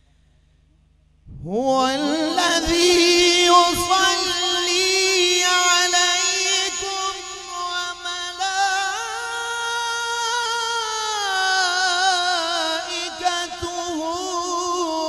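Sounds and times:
man reciting in melodic style: 0:01.3 - 0:15.0.

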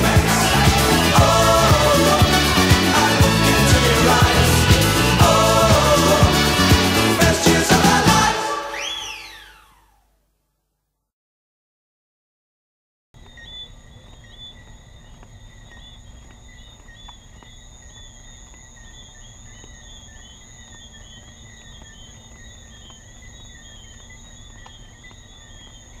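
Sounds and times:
insects chirping: 0:13.2 - 0:26.0
insects trilling: 0:13.2 - 0:26.0.

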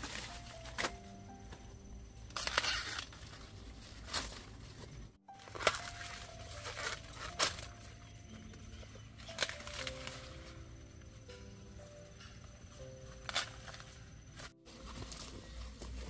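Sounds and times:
corn ears snapping off: 0:00.0 - 0:01.0, 0:02.3 - 0:04.5, 0:05.4 - 0:07.8, 0:09.2 - 0:10.3, 0:13.2 - 0:13.9
corn leaves rustling and tearing: 0:00.0 - 0:01.1, 0:02.3 - 0:08.1, 0:08.9 - 0:10.7, 0:13.1 - 0:16.0
soft background music: 0:00.0 - 0:16.0.

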